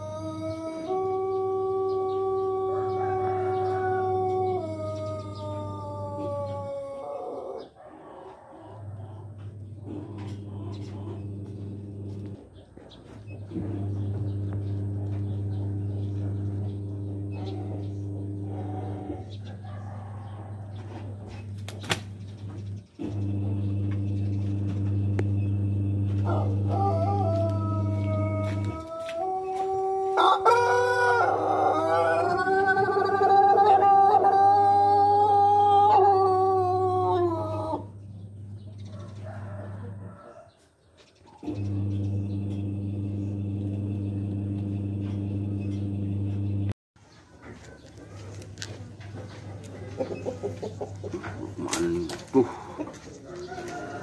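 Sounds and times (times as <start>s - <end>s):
rooster crowing: 0.0s - 9.4s, 14.8s - 21.3s, 26.0s - 40.8s, 52.4s - 54.0s.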